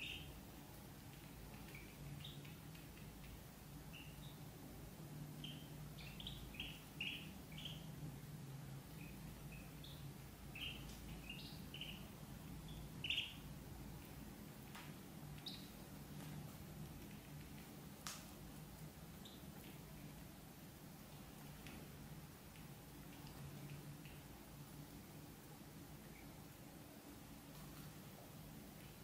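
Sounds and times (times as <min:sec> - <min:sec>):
ducklings peeping: 0:00.0 - 0:08.1, 0:08.7 - 0:18.1.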